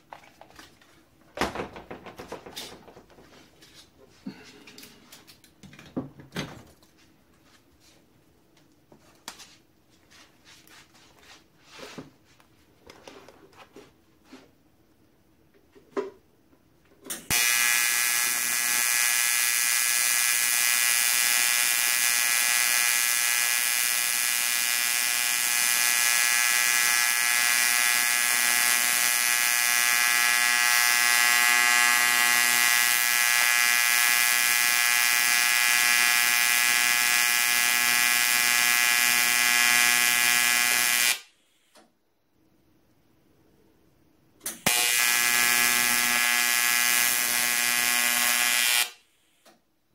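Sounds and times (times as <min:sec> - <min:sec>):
welding arc buzzing: 0:17.1 - 0:41.3, 0:44.5 - 0:49.0.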